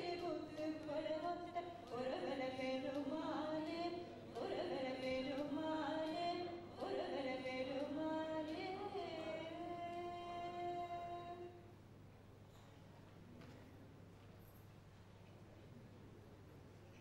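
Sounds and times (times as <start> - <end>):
person singing devotional song: 0.0 - 11.6.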